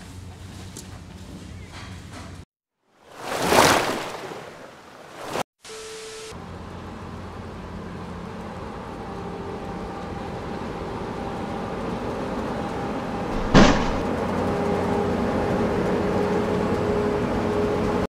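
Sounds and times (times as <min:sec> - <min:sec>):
sharp loud bang: 0:13.3 - 0:14.1.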